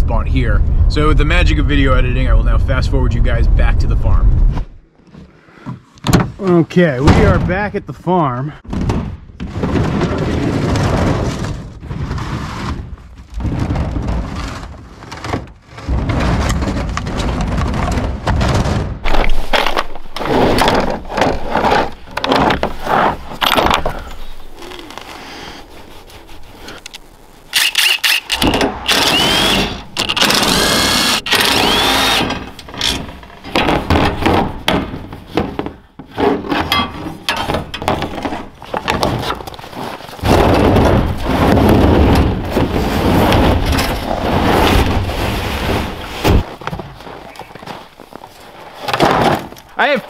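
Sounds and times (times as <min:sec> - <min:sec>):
cordless drill whining: 0:27.5 - 0:32.5.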